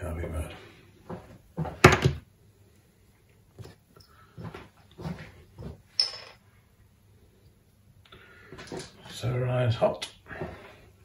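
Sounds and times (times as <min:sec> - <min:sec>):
objects knocking on wooden workbench: 0:01.6 - 0:02.2.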